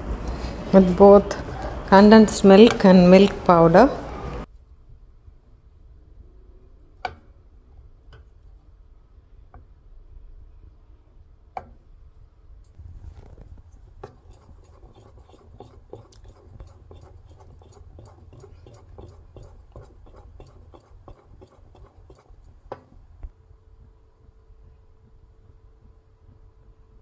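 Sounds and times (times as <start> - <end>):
spoon scraping a steel pan: 14.0 - 22.9.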